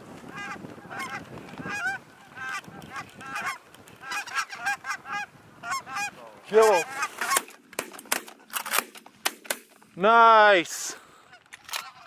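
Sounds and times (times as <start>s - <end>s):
geese honking in flight: 0.3s - 7.4s.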